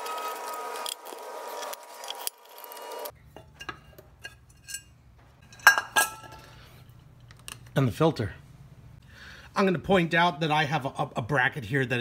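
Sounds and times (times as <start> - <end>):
metal cover and screws clinking: 0.0 - 6.6.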